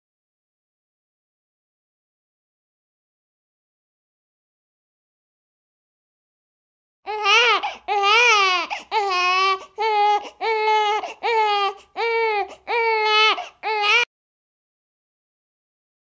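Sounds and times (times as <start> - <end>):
newborn baby crying: 7.1 - 14.1.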